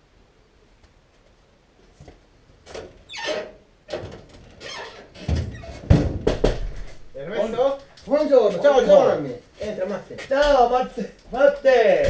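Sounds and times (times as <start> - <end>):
glass door opening: 2.6 - 7.0
scrapes rattles and squeaks: 2.6 - 8.7.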